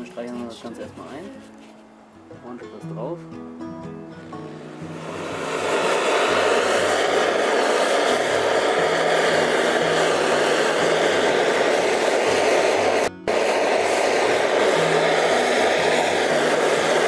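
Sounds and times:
heating tool blowing: 4.3 - 17.0.

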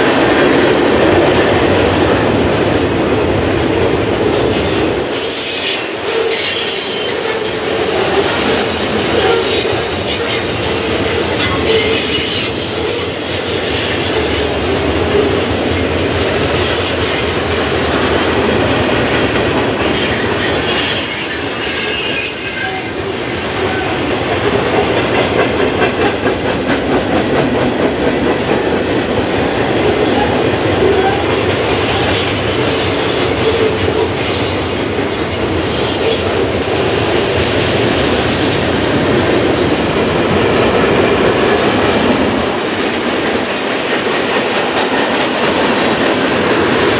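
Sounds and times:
freight train rumbling on rails: 0.0 - 46.9
wheel squeals: 18.4 - 23.0, 34.2 - 36.3.

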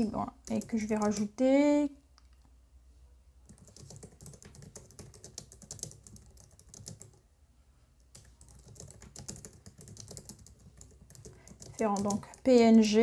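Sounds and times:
typing on computer keyboard: 0.4 - 1.4, 3.4 - 7.2, 8.0 - 13.0.

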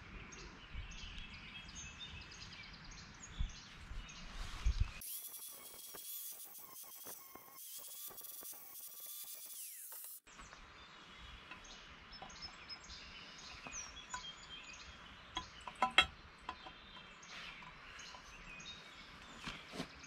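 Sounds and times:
birds chirping: 0.0 - 20.0
low outdoor background noise: 10.2 - 20.0.

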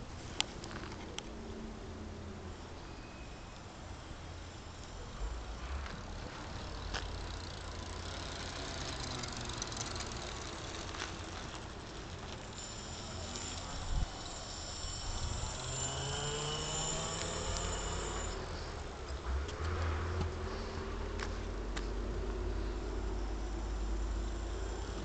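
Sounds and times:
electric motor whining: 4.7 - 18.6, 23.2 - 25.0.

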